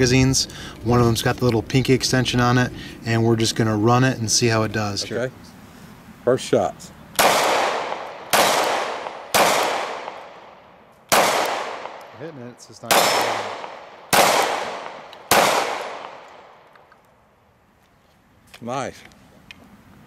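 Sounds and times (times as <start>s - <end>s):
pistol shots with echo: 7.2s - 16.7s.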